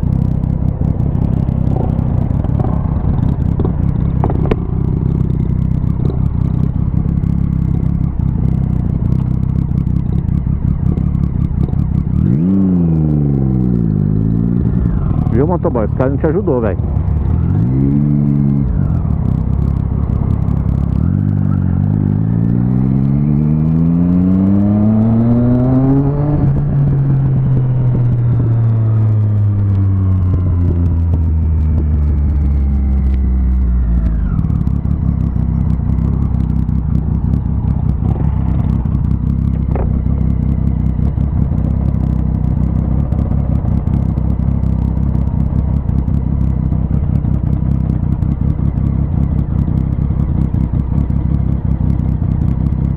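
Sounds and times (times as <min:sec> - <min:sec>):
motorcycle engine revving and idling: 0:00.0 - 0:52.9.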